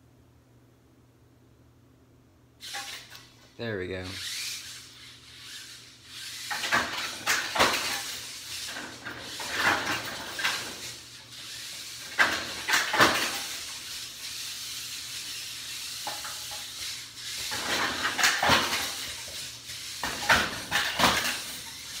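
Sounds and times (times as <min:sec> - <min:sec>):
robot motors whirring: 0:02.6 - 0:03.3, 0:04.0 - 0:22.0
metal frame clanking and rattling: 0:06.5 - 0:11.0, 0:12.0 - 0:13.8, 0:17.4 - 0:22.0.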